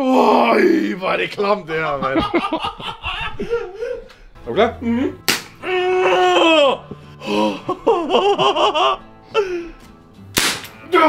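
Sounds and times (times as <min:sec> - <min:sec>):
nervous laughter: 0:01.8 - 0:04.2, 0:06.0 - 0:09.7
man's long held cry: 0:05.6 - 0:08.9.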